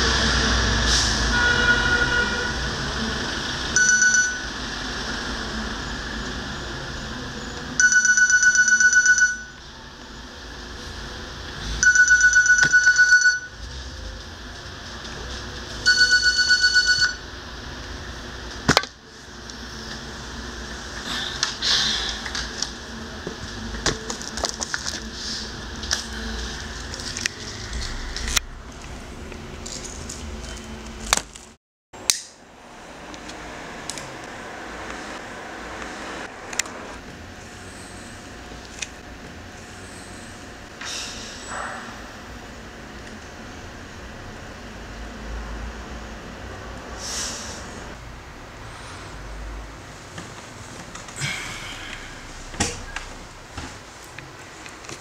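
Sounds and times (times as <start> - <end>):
phone ringtone beeping: 3.7 - 4.6, 7.8 - 9.6, 11.8 - 13.6, 15.8 - 17.2.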